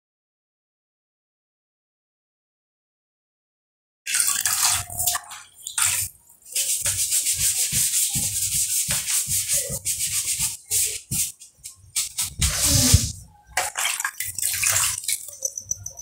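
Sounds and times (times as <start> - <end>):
wet sponge scrubbing: 4.4 - 15.7.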